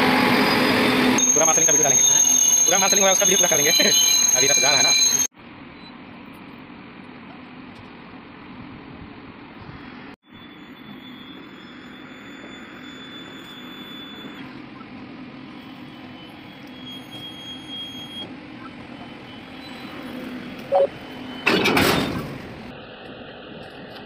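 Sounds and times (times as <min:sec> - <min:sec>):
short loud tone: 0:00.2 - 0:05.9, 0:10.2 - 0:14.4
thin high squeal: 0:00.3 - 0:05.3, 0:15.7 - 0:18.2
train rumble: 0:18.2 - 0:24.0.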